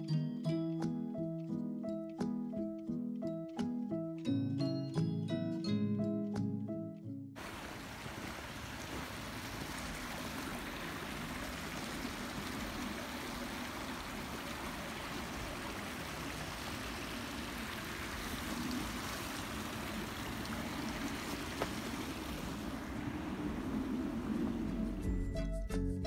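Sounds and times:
stream flowing water: 7.4 - 25.1.

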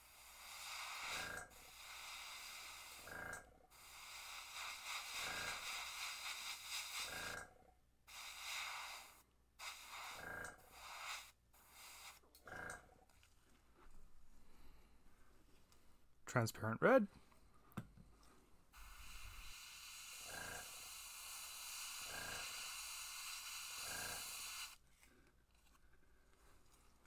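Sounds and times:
airbrush air hissing: 0.0 - 7.4, 8.1 - 12.2, 18.8 - 24.8.

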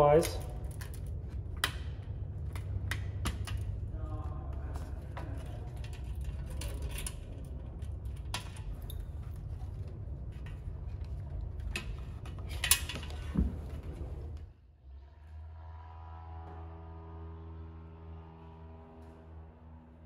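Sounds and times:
metallic clicks and clatter: 0.0 - 14.5.

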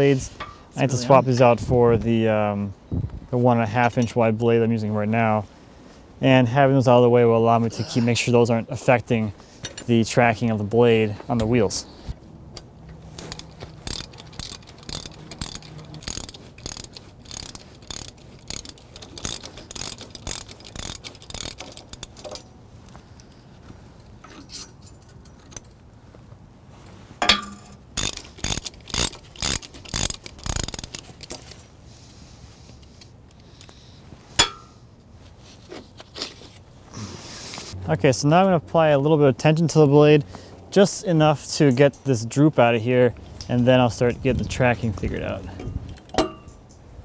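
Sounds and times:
metal clanks: 12.6 - 22.5, 27.2 - 31.6, 45.5 - 46.8
ratchet wrench clicking: 13.1 - 22.4, 28.0 - 31.5.

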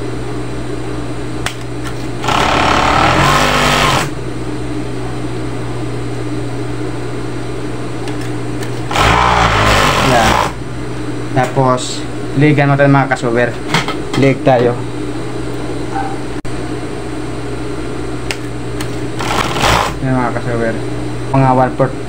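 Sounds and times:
sewing machine motor humming: 2.0 - 4.2, 8.7 - 10.6, 18.9 - 20.0
sewing machine stitching: 2.2 - 4.1, 8.9 - 10.6, 19.2 - 20.0.

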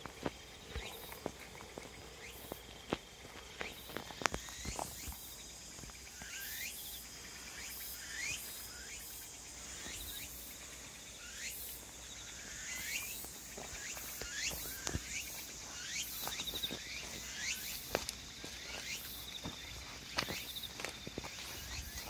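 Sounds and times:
soft footsteps: 0.0 - 6.3, 11.8 - 22.0
insects chirring: 0.0 - 22.0.

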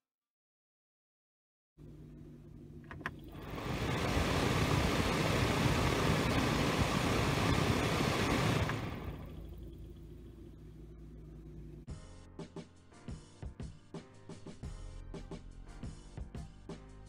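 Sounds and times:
blower fan rushing air: 1.9 - 11.9.

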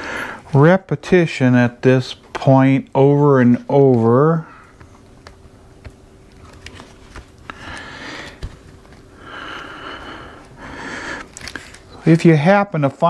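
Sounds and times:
soft breaths: 6.8 - 12.2.

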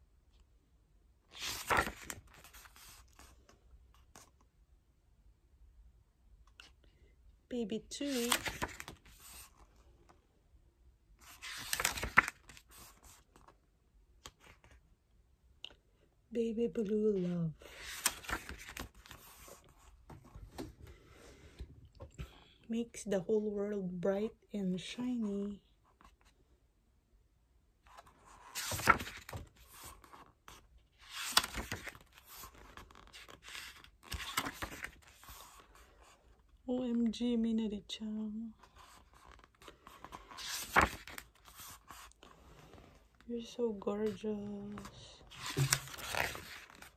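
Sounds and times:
stiff paper page rustle: 1.3 - 3.4, 8.0 - 9.6, 11.2 - 13.5, 17.7 - 19.8, 27.9 - 36.1, 38.7 - 42.8, 44.8 - 46.9.

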